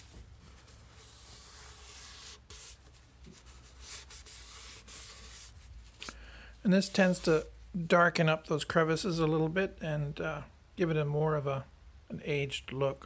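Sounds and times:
paper towel rubbing wood: 0.0s - 5.8s.

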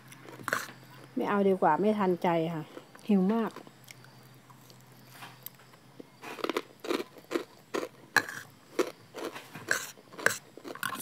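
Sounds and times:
person chewing crunchy food: 0.0s - 0.8s, 3.8s - 11.0s.

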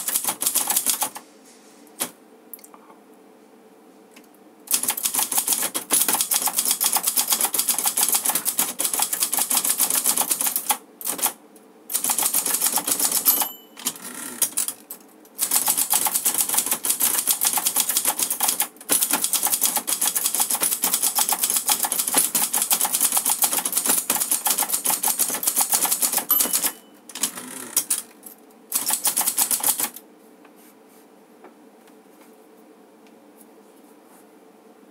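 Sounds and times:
manual typewriter typing fast: 0.0s - 1.2s, 4.7s - 30.0s
typewriter bell ding: 13.0s - 14.0s, 26.2s - 27.0s.

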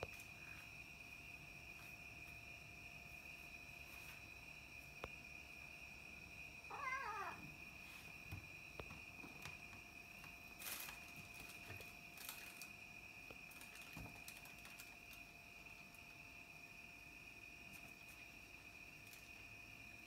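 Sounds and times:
cat meowing: 6.7s - 7.4s.

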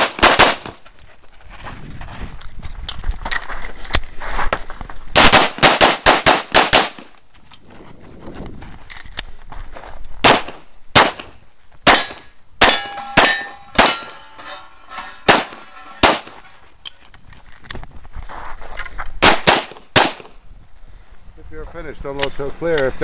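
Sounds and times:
pistol shots: 0.0s - 0.8s, 5.2s - 7.1s, 10.2s - 14.2s, 15.3s - 16.4s, 19.2s - 20.4s
steel targets ringing: 11.9s - 16.6s.

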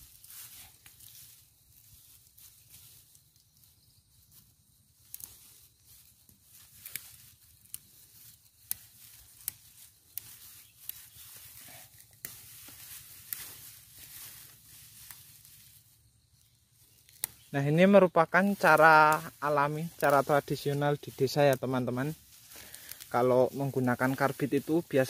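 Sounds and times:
leaves rustling: 0.0s - 25.0s
twigs snapping: 5.0s - 5.5s, 6.2s - 15.8s, 16.9s - 17.6s, 18.5s - 24.3s.

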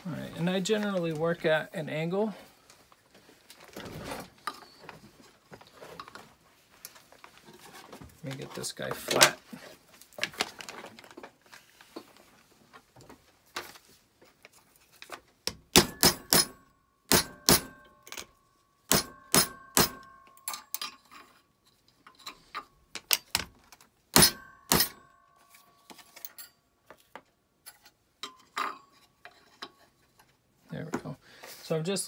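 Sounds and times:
hammer tapping metal: 15.5s - 18.2s, 18.9s - 20.8s, 24.2s - 25.2s
metal handling: 19.6s - 31.1s.

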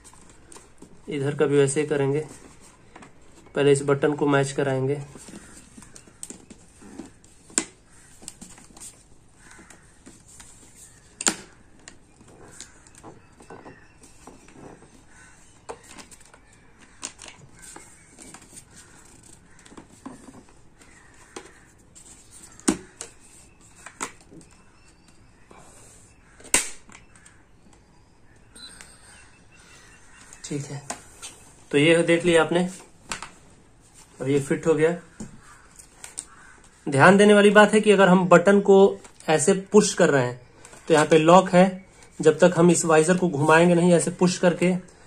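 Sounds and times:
plastic visor rubbing: 5.0s - 25.1s.

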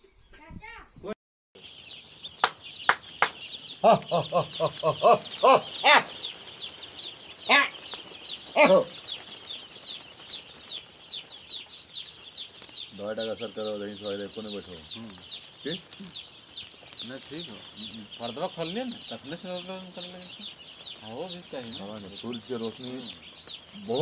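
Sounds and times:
chicks peeping: 1.6s - 24.0s
louder lower calls: 2.4s - 6.3s, 7.4s - 7.8s, 8.5s - 9.0s.

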